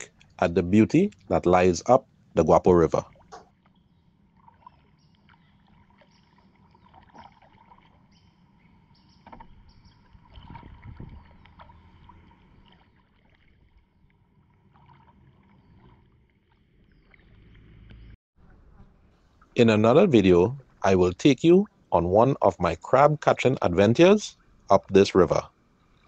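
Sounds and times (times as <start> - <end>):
paddle splashing and dripping: 0.0 - 0.4, 1.0 - 1.5, 3.0 - 19.6, 25.5 - 26.0.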